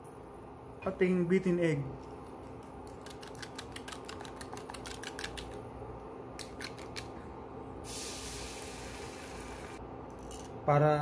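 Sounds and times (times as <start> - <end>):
egg sizzling in hot pan: 7.9 - 9.8.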